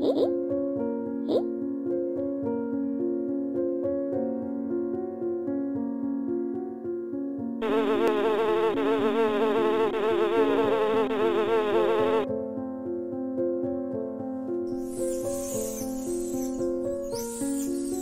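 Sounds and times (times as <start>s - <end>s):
soft keyboard music: 0.0s - 18.0s
flying insect buzzing: 7.6s - 12.3s.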